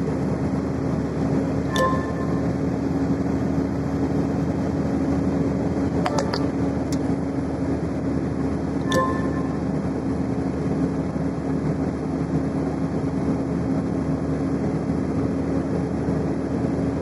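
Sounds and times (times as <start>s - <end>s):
vehicle road and engine noise: 0.0s - 17.0s.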